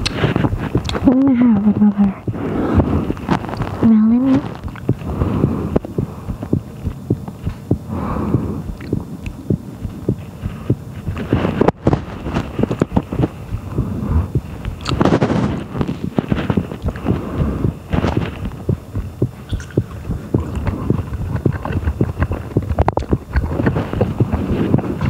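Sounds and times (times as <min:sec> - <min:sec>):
wet mouth clicks: 0:00.0 - 0:01.2, 0:04.5 - 0:05.1, 0:08.6 - 0:10.2, 0:14.6 - 0:15.0, 0:19.5 - 0:24.4
loud chewing: 0:00.0 - 0:25.0.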